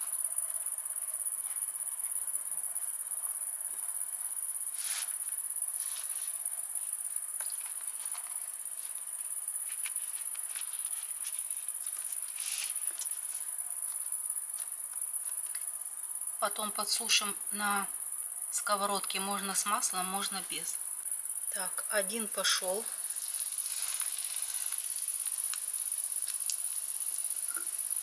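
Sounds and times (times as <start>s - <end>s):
crickets trilling: 0.0s - 28.0s
flatbread rustling on table: 23.3s - 24.8s.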